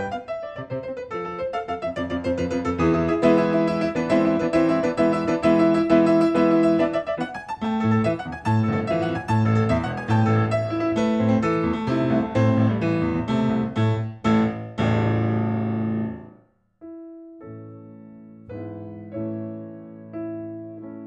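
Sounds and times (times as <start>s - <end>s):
piano playing hammered chords: 0.0s - 16.3s.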